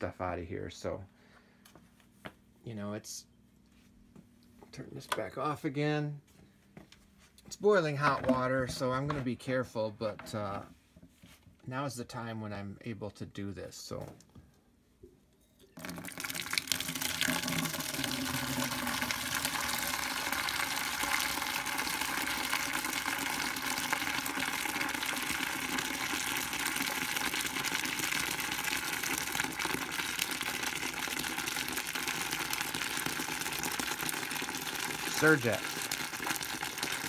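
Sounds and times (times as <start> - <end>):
water pouring into plastic bucket: 15.8 - 37.0.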